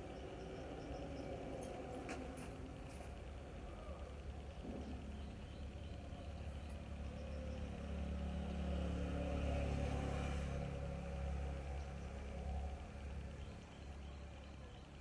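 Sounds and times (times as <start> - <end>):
vehicle engine passing by: 6.4 - 14.6.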